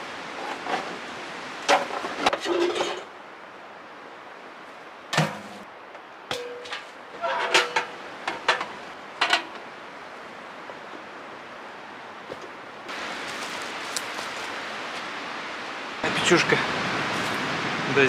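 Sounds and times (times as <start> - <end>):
metal stove clanking and rattling: 6.3 - 9.6
steady rushing noise: 12.6 - 18.0.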